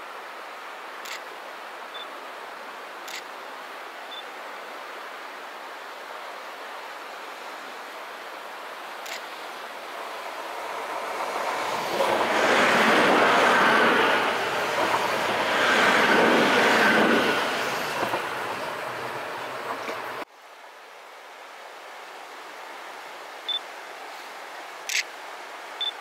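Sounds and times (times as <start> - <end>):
electric train passing: 9.9 - 20.2.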